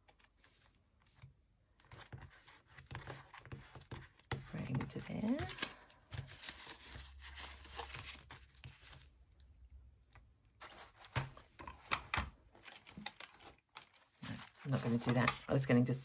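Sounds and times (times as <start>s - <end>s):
paper rustling and crinkling: 0.0s - 9.2s, 10.6s - 15.8s
sharp paper crackles: 12.6s - 15.6s.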